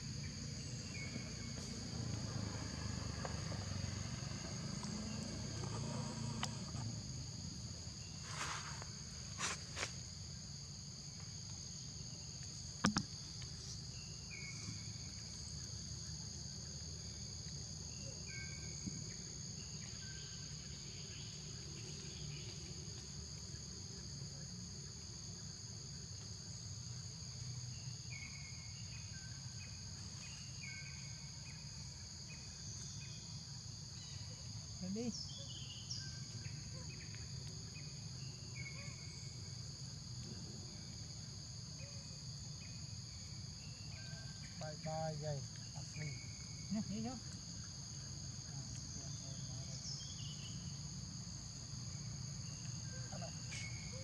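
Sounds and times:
high-pitched insect drone: 42.6 - 51.2.

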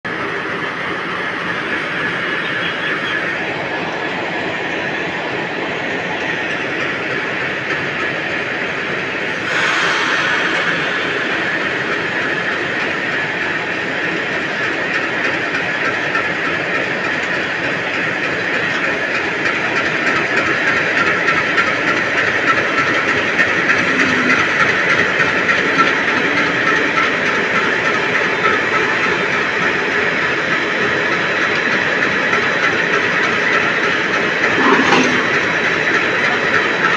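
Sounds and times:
diesel locomotive engine running: 0.0 - 36.9
coupling clank: 34.4 - 35.7.

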